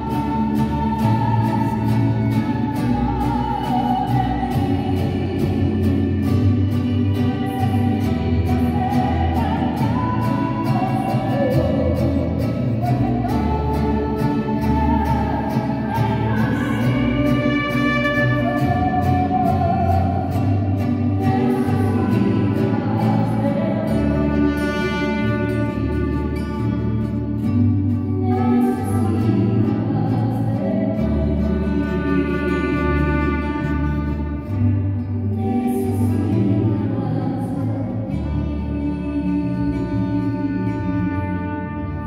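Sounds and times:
choir singing: 0:00.0 - 0:26.7.

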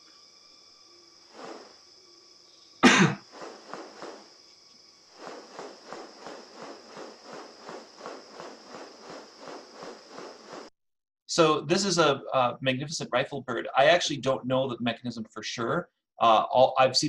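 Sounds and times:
wing rustles: 0:01.2 - 0:02.0, 0:03.2 - 0:10.7
bird wings swishing: 0:01.3 - 0:01.8, 0:03.2 - 0:10.7.

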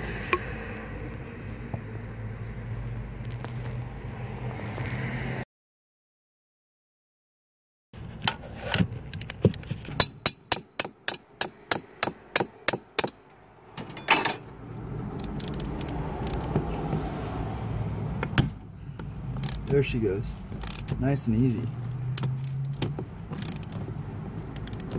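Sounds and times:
ratchet wrench clicking: 0:15.1 - 0:16.7, 0:19.4 - 0:19.8, 0:20.6 - 0:21.0, 0:21.8 - 0:23.8, 0:24.4 - 0:24.9.

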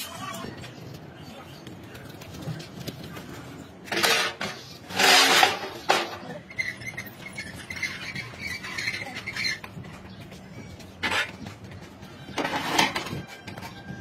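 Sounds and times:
steel pipe clattering and scraping: 0:03.8 - 0:09.7, 0:11.0 - 0:11.6, 0:12.3 - 0:13.8.

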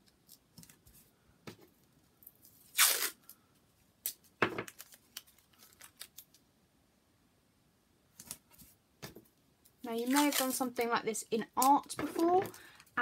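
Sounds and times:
tape rustling and taps: 0:00.0 - 0:02.6, 0:08.2 - 0:10.4, 0:11.6 - 0:12.7
tape ripping off paper: 0:02.6 - 0:03.2, 0:10.0 - 0:10.6.

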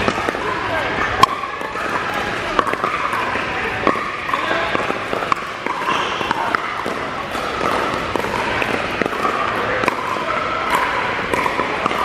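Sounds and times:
paddles striking plastic ball: 0:03.8 - 0:12.0.

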